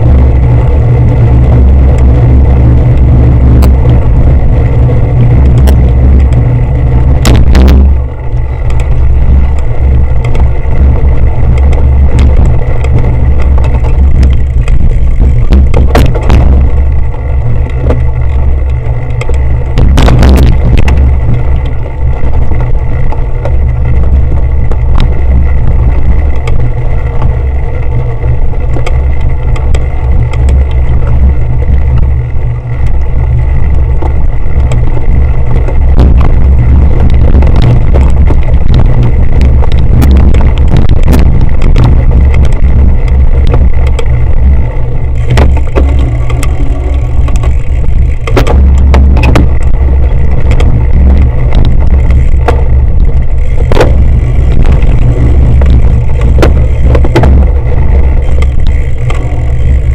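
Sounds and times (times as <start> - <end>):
bike knocks and rattles: 0.0 - 59.9
wind rumble on microphone: 0.0 - 59.9.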